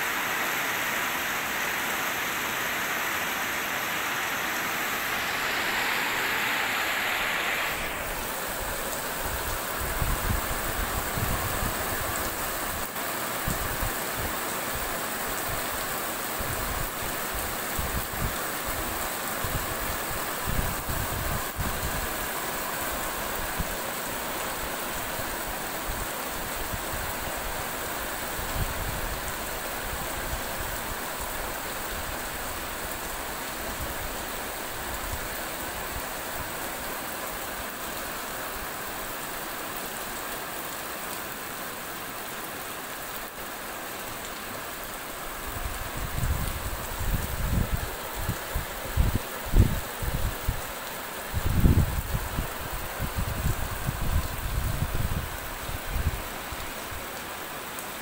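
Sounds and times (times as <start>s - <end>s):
heavy rain on street: 0.0s - 58.0s.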